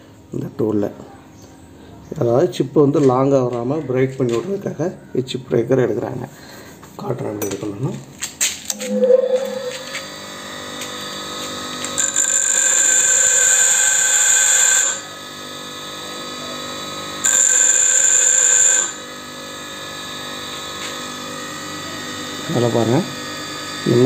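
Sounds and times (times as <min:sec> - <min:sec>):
bench grinder motor hum: 0:08.7 - 0:24.0
high-pitched metal grinding: 0:08.7 - 0:24.0.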